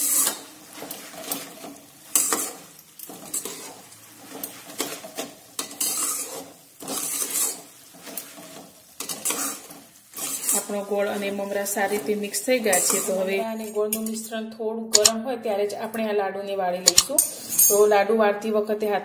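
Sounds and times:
puffed rice rustling: 0:00.0 - 0:13.3
spatula scraping a pan: 0:00.0 - 0:14.0, 0:17.1 - 0:17.8.

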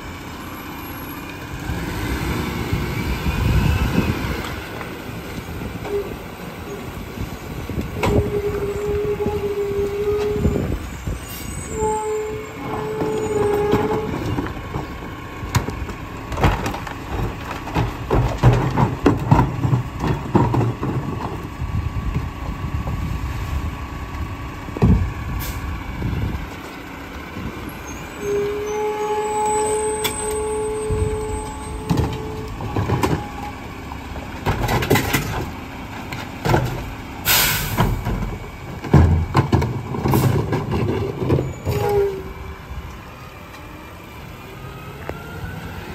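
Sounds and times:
garbage truck engine and packer: 0:00.0 - 0:45.9
trash carts knocking and clunking: 0:01.4 - 0:11.2, 0:12.2 - 0:27.9, 0:29.3 - 0:43.6
sharp air hiss: 0:37.2 - 0:37.8.

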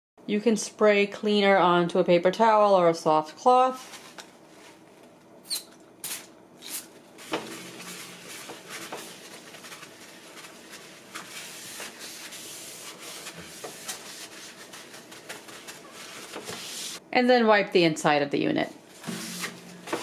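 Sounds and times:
paper towel rubbing on glass: 0:07.2 - 0:17.0.

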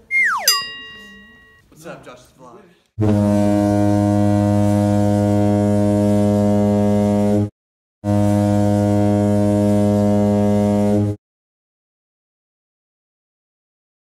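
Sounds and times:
deep horn blasts: 0:03.0 - 0:11.2.

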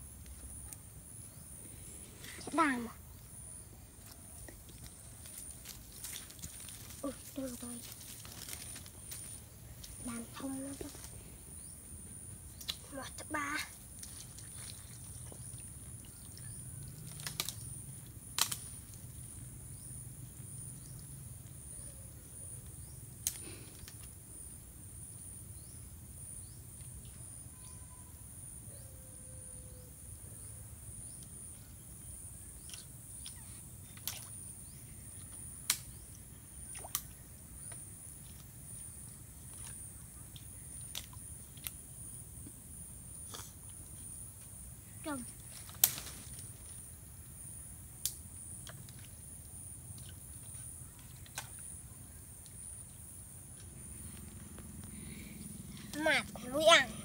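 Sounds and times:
insect drone: 0:00.0 - 0:57.0
twigs clicking and snapping: 0:04.0 - 0:11.1, 0:12.5 - 0:12.9, 0:16.9 - 0:18.9, 0:23.2 - 0:24.1, 0:35.6 - 0:36.0, 0:45.3 - 0:46.7.

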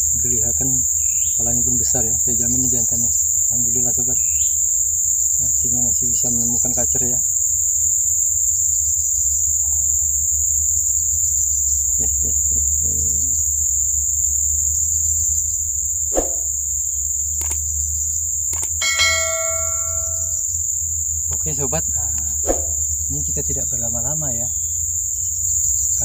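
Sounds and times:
forest insects droning: 0:00.0 - 0:26.0
bell-like ding: 0:18.8 - 0:20.4.

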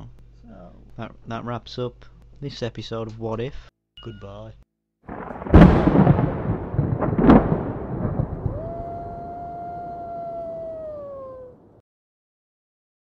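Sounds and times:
loud boom with rumbling tail: 0:05.1 - 0:09.4
held tone sinking in pitch: 0:08.5 - 0:11.6.

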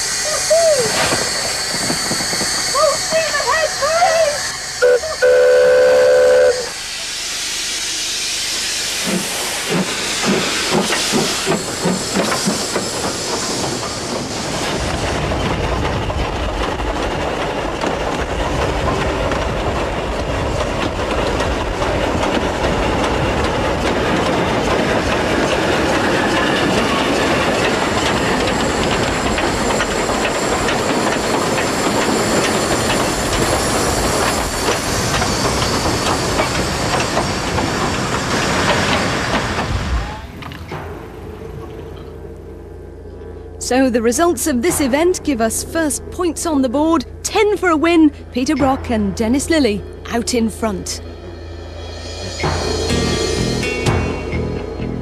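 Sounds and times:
steam hissing: 0:00.0 - 0:40.4
train running on rails: 0:00.0 - 0:55.0
steam locomotive whistle: 0:02.6 - 0:06.9.

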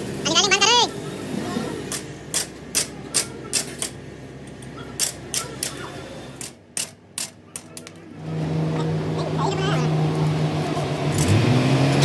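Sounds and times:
tools tapping on metal: 0:01.9 - 0:05.8.

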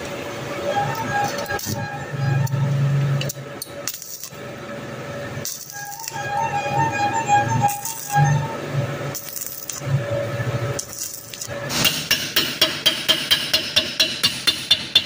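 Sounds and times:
welding arc crackling: 0:03.2 - 0:04.4, 0:05.3 - 0:06.2, 0:07.6 - 0:08.3, 0:09.1 - 0:09.8.

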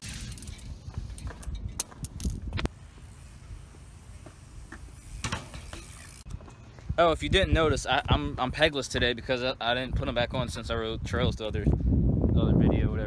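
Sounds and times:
wind rumble on microphone: 0:06.3 - 0:13.0.

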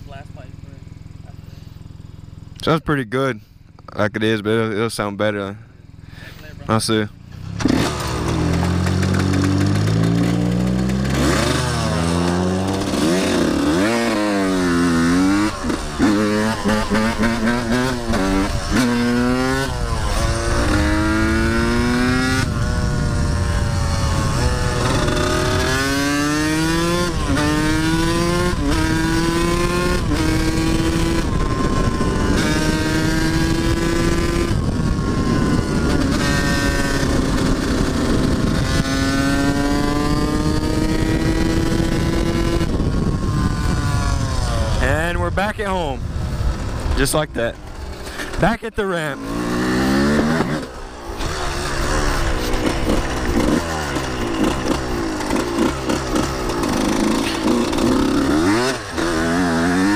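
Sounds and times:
dirt bike engine revving: 0:03.8 - 0:59.9
wind rushing over microphone: 0:16.5 - 0:48.0.

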